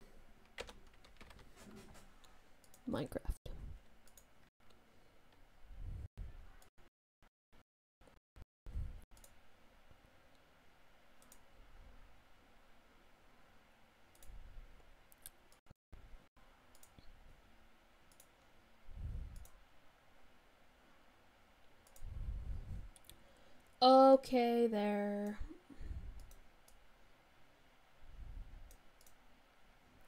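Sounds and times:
computer mouse clicks: 0:04.0 - 0:04.8, 0:11.2 - 0:11.5, 0:14.1 - 0:14.4, 0:16.7 - 0:17.1, 0:18.1 - 0:18.5, 0:19.3 - 0:19.6, 0:21.6 - 0:22.2, 0:26.2 - 0:26.8, 0:28.6 - 0:29.2.

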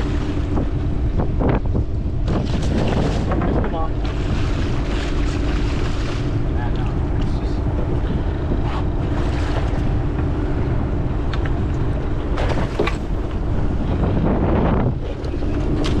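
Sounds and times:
boat engine hum: 0:00.0 - 0:16.0
water washing along hull: 0:00.0 - 0:16.0
wind buffeting microphone: 0:00.0 - 0:16.0
sharp water splashes: 0:04.0 - 0:06.4.

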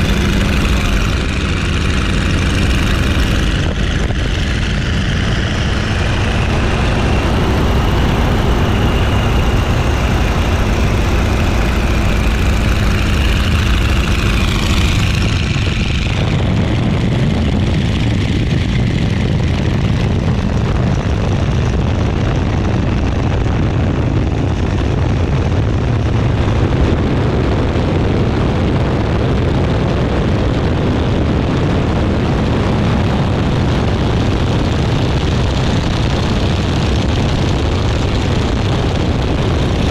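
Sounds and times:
high tone sliding downward: 0:00.0 - 0:15.9
propeller plane engine drone: 0:00.0 - 0:39.9
wind rush: 0:00.0 - 0:39.9.

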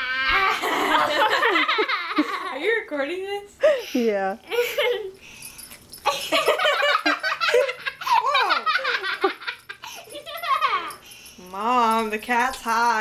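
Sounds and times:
child giggling: 0:00.2 - 0:02.6, 0:04.5 - 0:05.2, 0:06.1 - 0:11.0.

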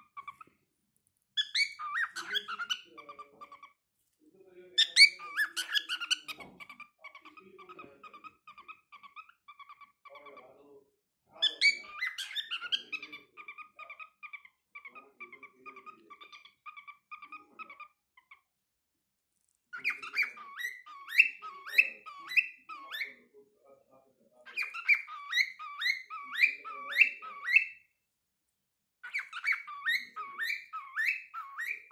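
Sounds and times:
cockatiel chirping: 0:00.0 - 0:00.5, 0:01.4 - 0:03.8, 0:04.7 - 0:10.5, 0:11.4 - 0:18.5, 0:19.7 - 0:23.2, 0:24.4 - 0:27.9, 0:29.0 - 0:31.9
cockatiel whistling: 0:01.4 - 0:02.9, 0:29.0 - 0:31.9.

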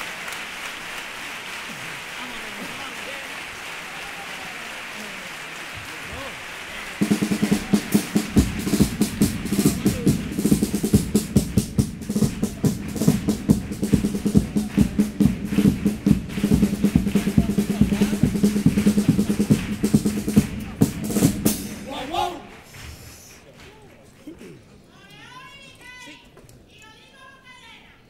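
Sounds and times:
snare and bass drum rhythm: 0:06.9 - 0:23.5.

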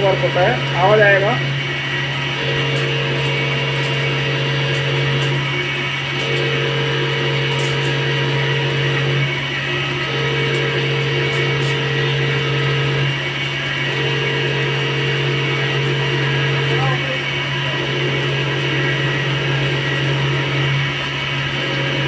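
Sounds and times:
high machine tone: 0:00.0 - 0:22.0
lathe low hum: 0:00.0 - 0:22.0.

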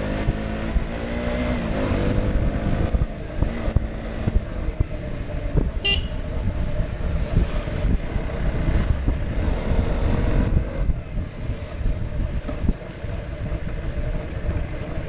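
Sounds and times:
motorcycle engine running: 0:00.0 - 0:15.0
wind rushing over microphone: 0:00.0 - 0:15.0.

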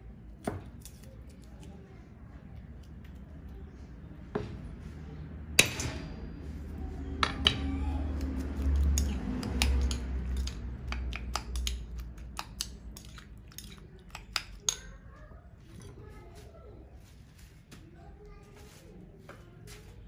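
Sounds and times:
metal spoon clinking ceramic bowl: 0:08.8 - 0:14.9.

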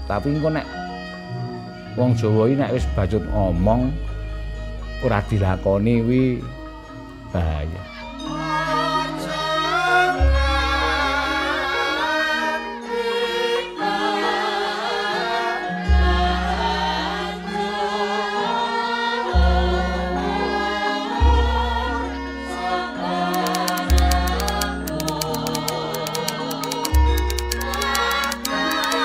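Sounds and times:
choir singing: 0:08.3 - 0:29.0
fast run of clicks: 0:23.4 - 0:29.0.

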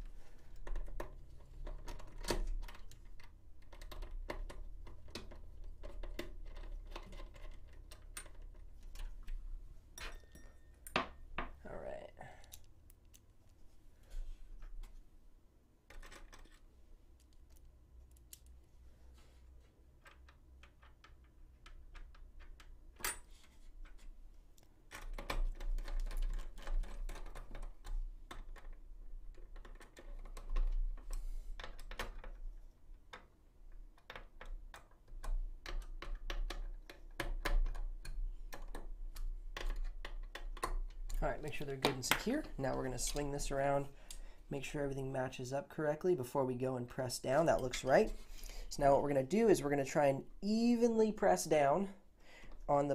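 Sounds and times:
small clicks and scrapes of hardware: 0:12.4 - 0:15.0, 0:15.9 - 0:32.5.

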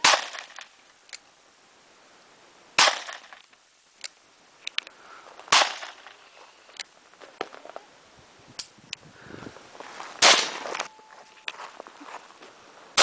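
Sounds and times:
rifle shots: 0:00.0 - 0:00.6, 0:02.8 - 0:03.4, 0:05.5 - 0:06.1, 0:10.2 - 0:10.7.

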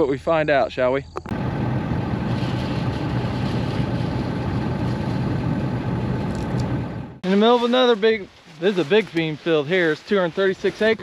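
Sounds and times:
vehicle engine idling: 0:01.3 - 0:07.2.

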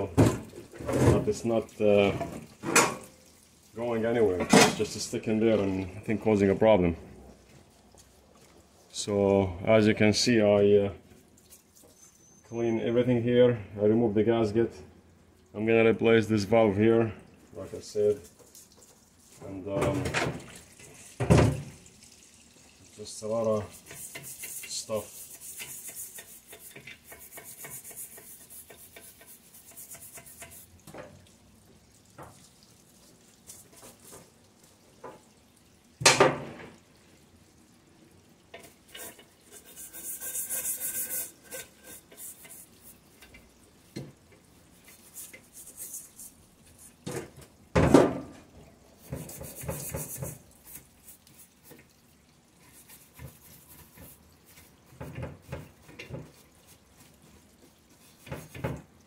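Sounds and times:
scrubbing sludge in metal pan: 0:22.6 - 0:31.5, 0:32.3 - 0:35.4, 0:38.3 - 0:47.4, 0:48.8 - 0:59.0.

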